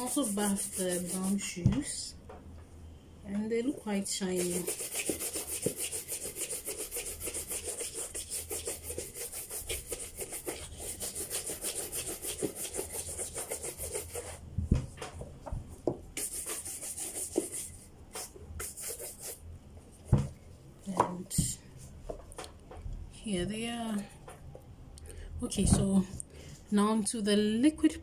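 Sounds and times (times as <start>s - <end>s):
buffing strokes on leather shoe: 4.4s - 14.4s, 16.2s - 19.4s
knocks and handling of shoe: 20.1s - 22.8s.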